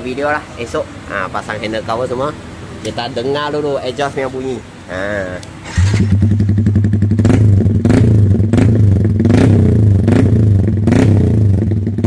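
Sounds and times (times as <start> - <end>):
motorcycle engine running: 5.7 - 12.0.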